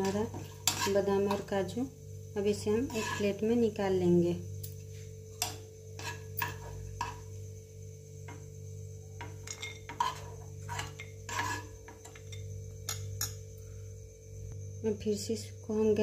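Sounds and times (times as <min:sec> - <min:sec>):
spoon scraping frying pan: 0:00.0 - 0:01.5, 0:02.8 - 0:03.4, 0:05.4 - 0:07.4, 0:09.2 - 0:13.2.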